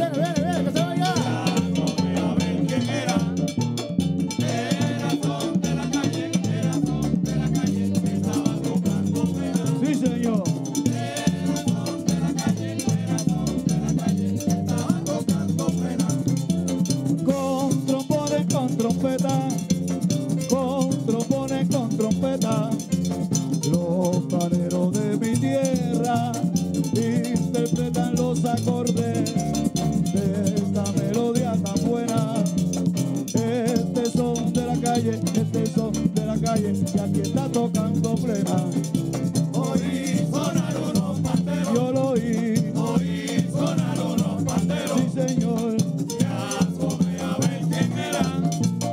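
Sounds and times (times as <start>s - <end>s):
voices singing: 0.0s - 16.7s, 33.4s - 48.9s
hand drums: 0.0s - 48.9s
stick percussion: 0.0s - 48.9s
guiro scraping: 0.9s - 17.3s, 37.6s - 48.9s.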